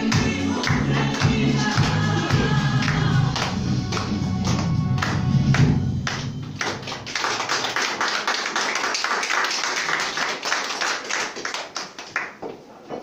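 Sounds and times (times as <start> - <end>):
music: 0.0 - 7.8
audience applauding: 0.6 - 12.4.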